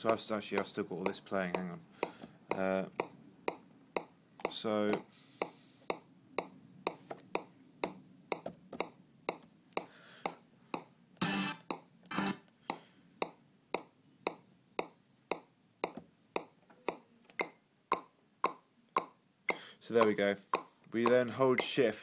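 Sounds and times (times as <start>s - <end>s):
metronome clicks: 14.3s - 21.8s.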